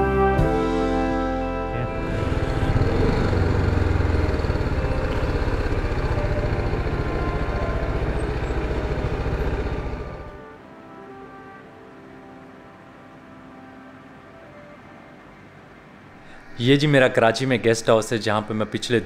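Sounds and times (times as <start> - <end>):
motorcycle engine running: 1.8 - 10.4
road and wind noise: 1.8 - 10.4.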